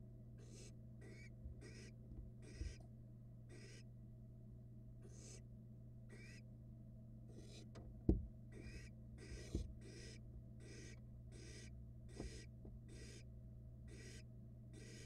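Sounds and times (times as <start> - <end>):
owl nestlings hissing: 0.4 - 2.8, 3.5 - 3.8, 5.0 - 5.4, 6.1 - 6.4, 7.3 - 7.6, 8.5 - 13.3, 13.9 - 15.0
dull thumps in nest box: 9.3 - 9.8.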